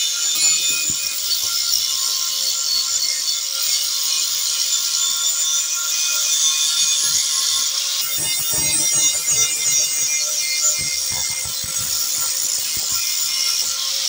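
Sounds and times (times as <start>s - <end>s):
angle grinder grinding steel: 7.0s - 14.0s.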